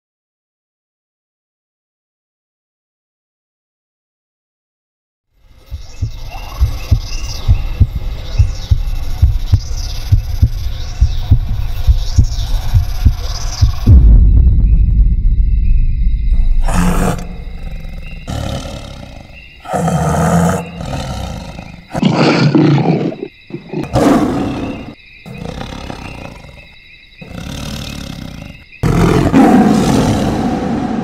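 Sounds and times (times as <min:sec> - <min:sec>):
high insect chirring: 0:05.4 - 0:29.2
lion roaring: 0:16.6 - 0:31.0.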